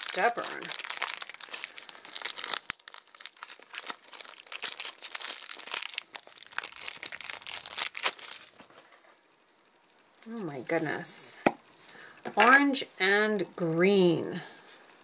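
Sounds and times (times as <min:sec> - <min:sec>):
plastic packet crinkling and tearing: 0:00.0 - 0:08.9.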